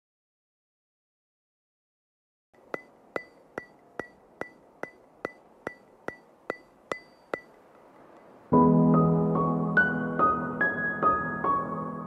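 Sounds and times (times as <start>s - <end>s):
sharp ticking clicks: 2.6s - 8.4s.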